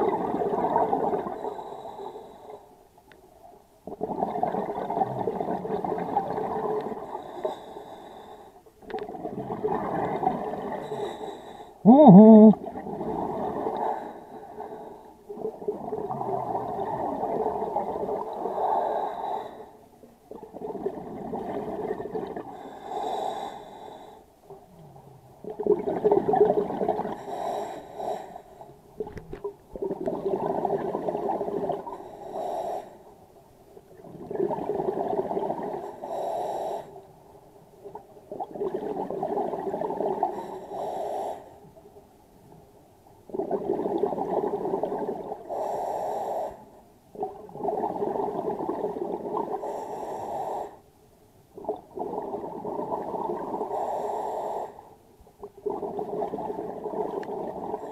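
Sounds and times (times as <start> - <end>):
gurgling exhaled bubbles: 0.0 - 1.7, 3.9 - 7.4, 8.9 - 11.2, 11.8 - 18.6, 20.3 - 22.8, 24.6 - 27.2, 29.0 - 32.0, 33.9 - 35.9, 37.9 - 40.5, 43.3 - 45.5, 47.1 - 49.8, 51.6 - 53.9, 55.5 - 57.9.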